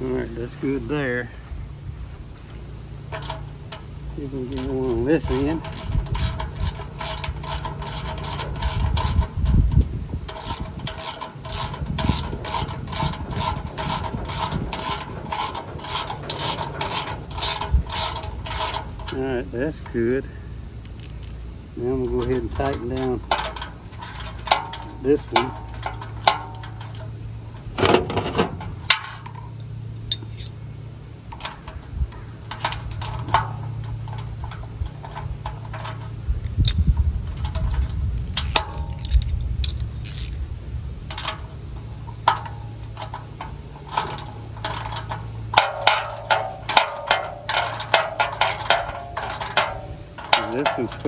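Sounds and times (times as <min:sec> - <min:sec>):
steady low hum: 0:00.0 - 0:51.0
metal tools clinking: 0:02.4 - 0:09.6, 0:10.3 - 0:30.7, 0:31.3 - 0:40.4, 0:41.0 - 0:51.0
socket ratchet clicking: 0:04.5 - 0:09.7, 0:10.3 - 0:19.2, 0:20.8 - 0:21.7, 0:31.3 - 0:40.4, 0:41.0 - 0:51.0.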